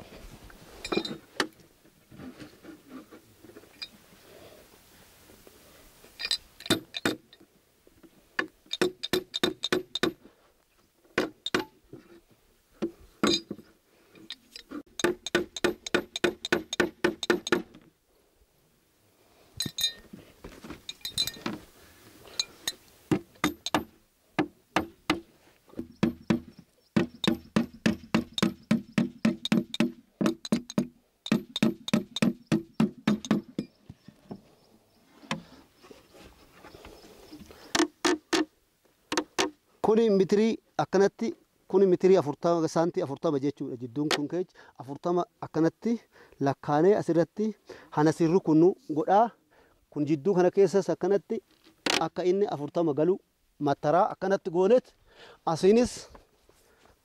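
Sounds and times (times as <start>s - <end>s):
hammer driving nails into wood: 6.6s - 7.2s, 8.7s - 10.2s, 11.2s - 11.8s, 14.9s - 17.8s, 23.1s - 25.2s, 25.8s - 33.7s, 39.1s - 39.6s.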